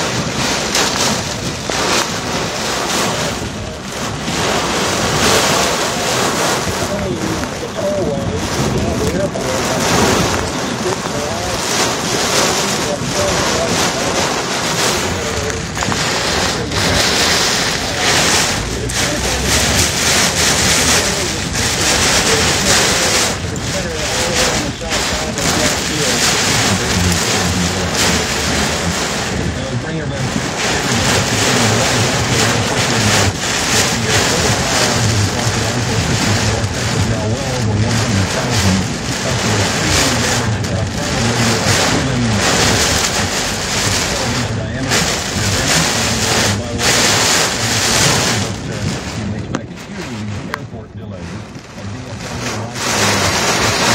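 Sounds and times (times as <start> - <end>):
heavy rain pelting a car: 0.0 - 53.9.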